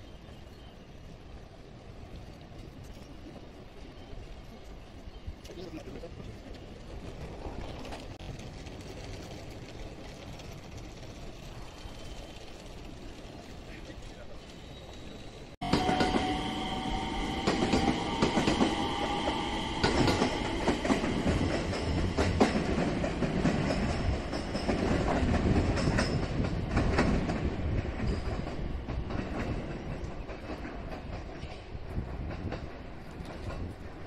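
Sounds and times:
wheels clacking over rail joints: 0:04.7 - 0:34.0
electric train motor whine: 0:15.6 - 0:21.7.

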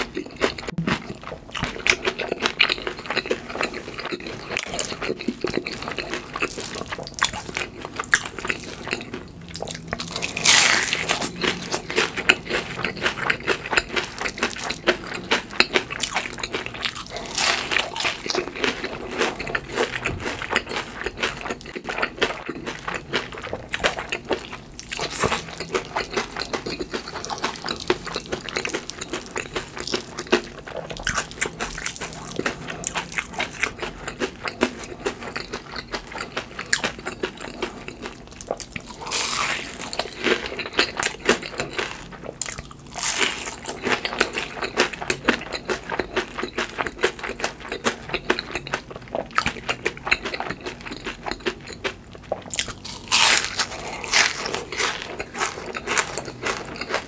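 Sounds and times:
crispy food chewing: 0:00.0 - 0:57.0
loud crunching bites: 0:52.5 - 0:57.0.

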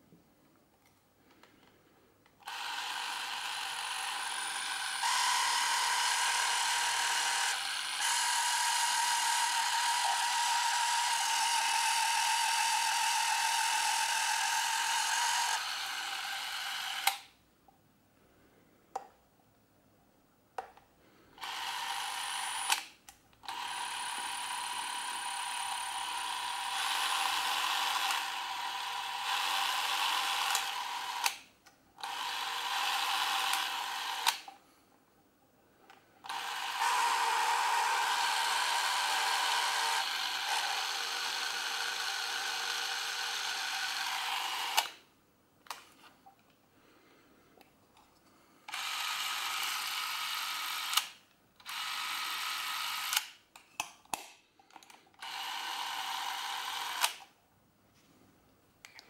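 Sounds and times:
camera motor whirring: 0:02.4 - 0:17.3, 0:21.4 - 0:31.4, 0:32.0 - 0:34.5, 0:36.2 - 0:45.0, 0:48.7 - 0:53.4, 0:55.2 - 0:57.3.

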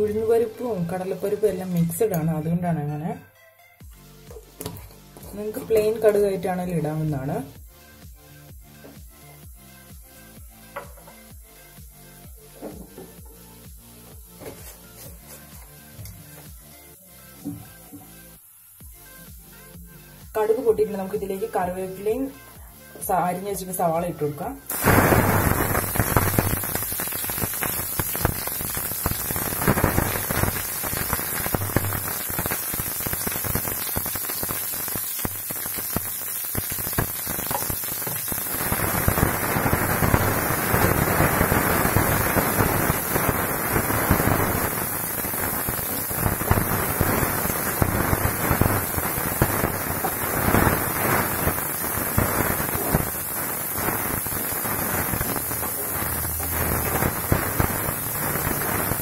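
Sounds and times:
vegetables sizzling in hot oil: 0:00.0 - 0:02.4, 0:16.4 - 0:19.5, 0:24.6 - 0:59.0.

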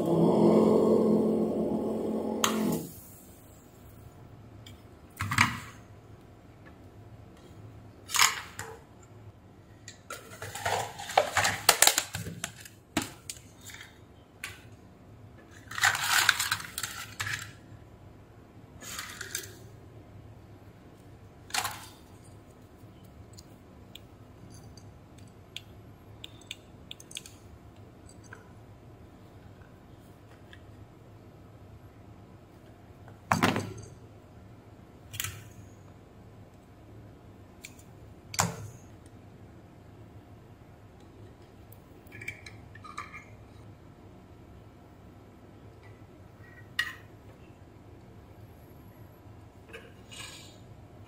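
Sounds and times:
circuit boards rattling in plastic tub: 0:15.7 - 0:17.6.

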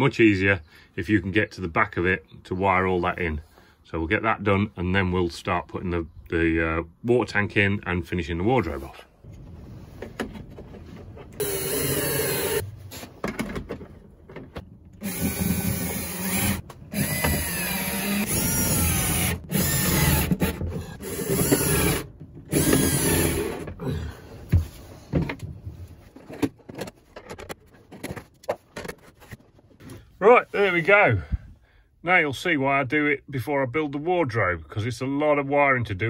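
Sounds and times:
cordless screwdriver motor whine: 0:11.4 - 0:12.6.

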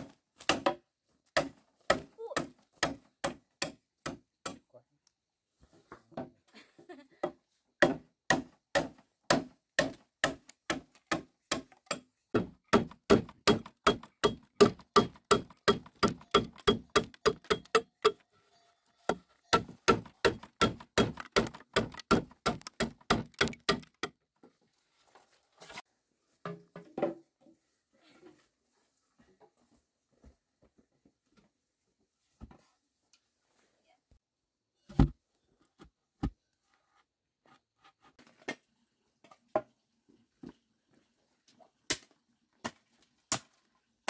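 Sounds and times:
machete chopping bamboo: 0:00.0 - 0:00.8, 0:01.4 - 0:04.6, 0:07.8 - 0:18.2, 0:19.6 - 0:24.2, 0:41.9 - 0:43.6.

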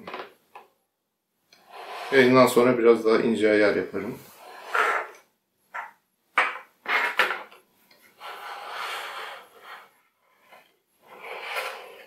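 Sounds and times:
plastic scraping on tabletop: 0:04.3 - 0:05.3, 0:08.1 - 0:12.0.

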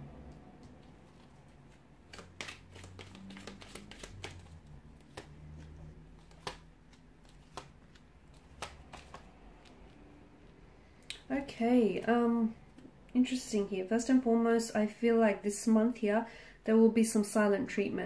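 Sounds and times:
cards sliding: 0:00.6 - 0:10.0
cards snapping and tapping on table: 0:02.1 - 0:09.9.

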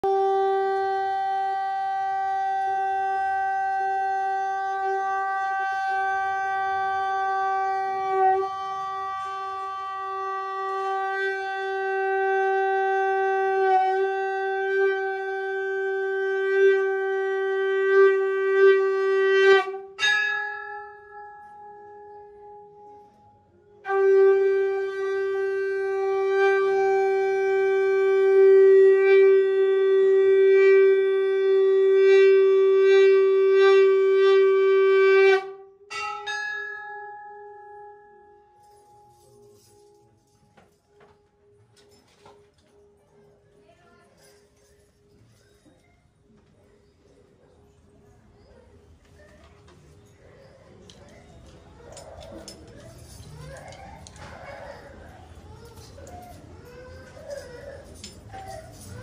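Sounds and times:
conch shell blown: 0:00.0 - 0:40.8, 0:55.7 - 0:59.0.

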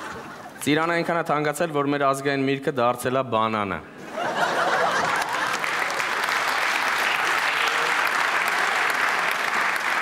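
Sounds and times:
audience laughter: 0:04.0 - 0:06.1
audience applauding: 0:04.7 - 0:10.0.

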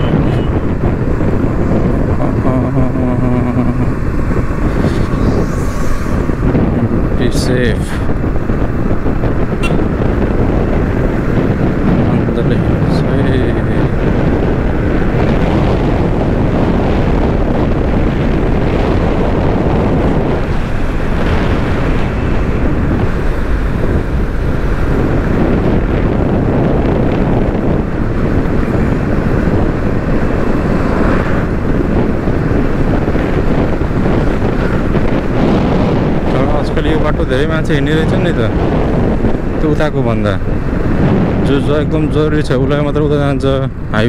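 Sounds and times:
road noise: 0:00.0 - 0:44.0
wind buffeting microphone: 0:00.0 - 0:44.0.

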